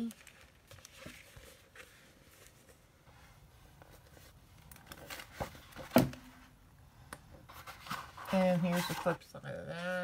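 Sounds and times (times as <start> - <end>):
paper rustling and sliding: 7.5 - 9.2.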